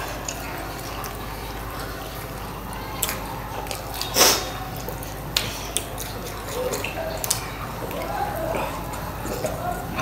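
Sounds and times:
wet chewing: 0.0s - 10.0s
loud wet smack: 4.0s - 4.6s.

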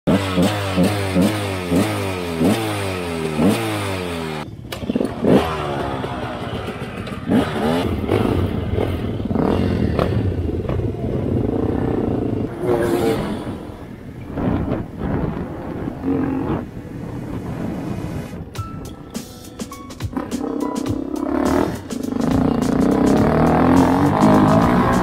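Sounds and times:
engine clatter: 0.1s - 12.6s
motorcycle engine revving: 0.1s - 18.4s, 20.0s - 25.0s.

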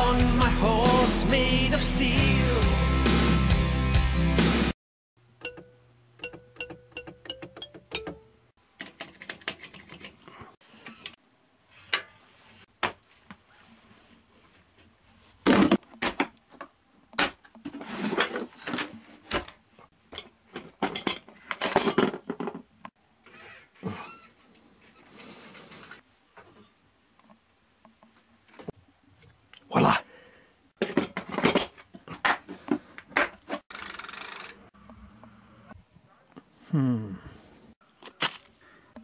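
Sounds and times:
hard objects clattering: 17.3s - 22.7s, 30.8s - 33.7s.

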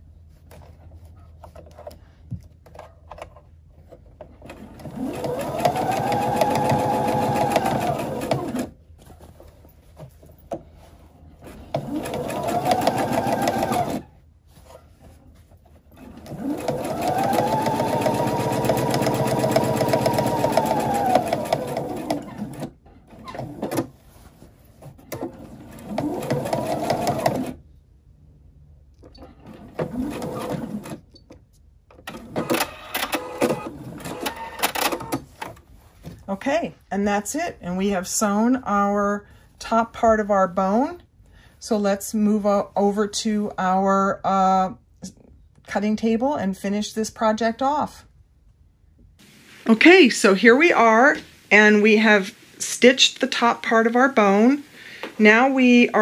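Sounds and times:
sewing machine stitching: 4.4s - 8.8s, 11.5s - 14.1s, 15.9s - 24.0s, 25.1s - 27.6s, 29.3s - 31.0s.

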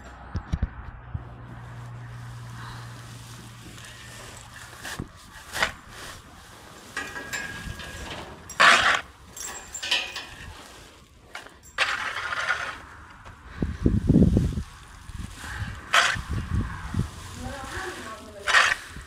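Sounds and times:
scraping manure on barn floor: 1.5s - 13.3s, 14.5s - 19.0s.

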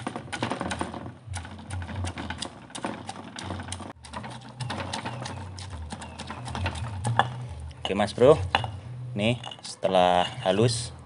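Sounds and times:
stone pestle pounding in mortar: 0.0s - 8.8s.

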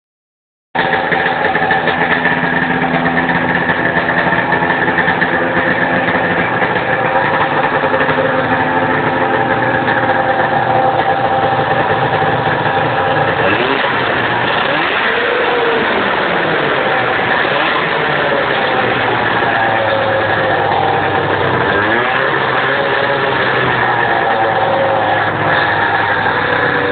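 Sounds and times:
snowmobile engine running: 0.8s - 26.9s.

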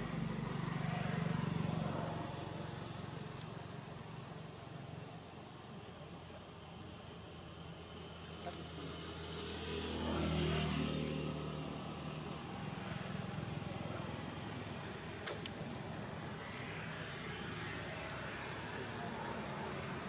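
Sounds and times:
vehicle engine passing: 8.5s - 15.1s.

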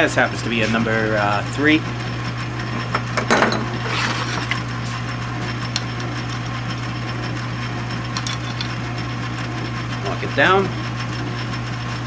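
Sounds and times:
metal lathe running: 3.8s - 4.8s.

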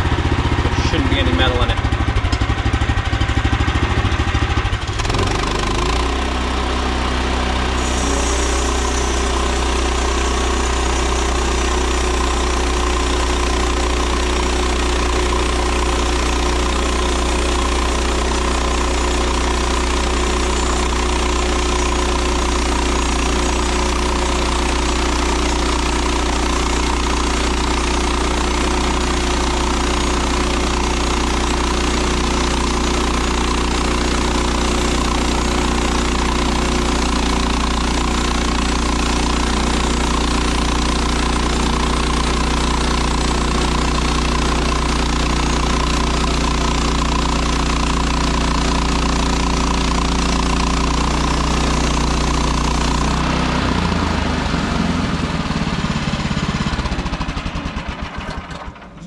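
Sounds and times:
sawmill engine running: 0.0s - 59.0s
high hiss of sawing: 7.8s - 11.6s.

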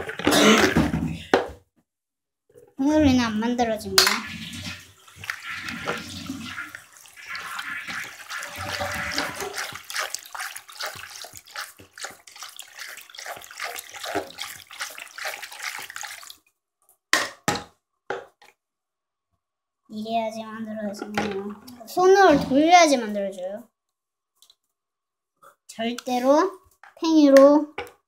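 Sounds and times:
water sloshing in plastic basin: 4.0s - 16.5s.

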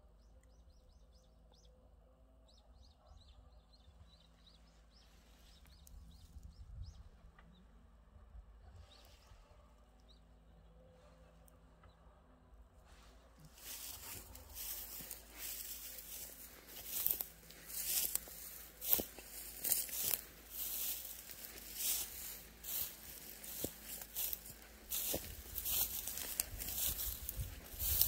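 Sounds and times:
footsteps crunching through frosted grass: 12.9s - 28.0s.

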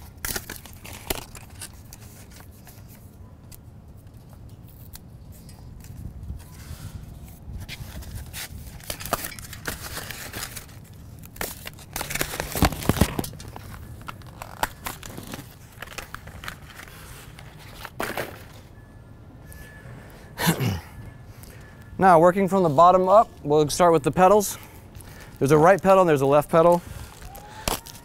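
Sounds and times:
plastic packaging crinkling: 0.1s - 2.9s, 8.1s - 18.0s.

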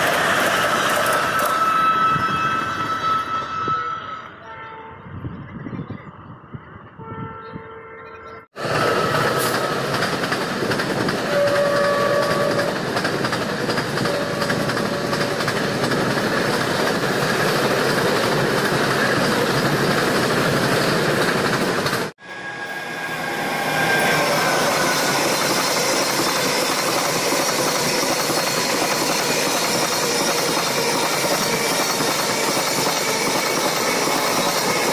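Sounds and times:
electric locomotive passing: 0.0s - 7.1s, 8.5s - 34.9s
wheels rushing on rail: 0.0s - 7.1s, 8.4s - 34.9s
train horn: 1.3s - 5.1s, 11.3s - 12.8s, 14.1s - 15.3s.

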